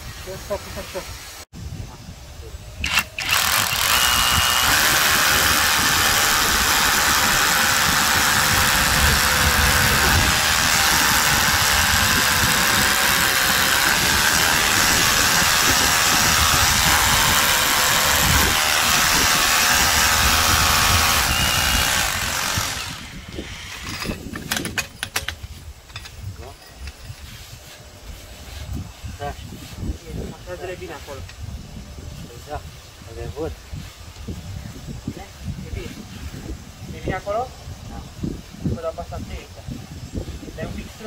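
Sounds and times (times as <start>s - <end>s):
rotary hammer drilling into concrete: 2.8s - 27.0s.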